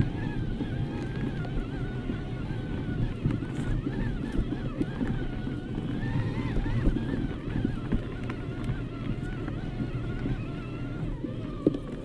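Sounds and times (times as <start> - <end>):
bike tyres rumbling on trail: 0.0 - 12.0
faint wavering motor whine: 0.0 - 12.0
wind on microphone: 0.0 - 12.0.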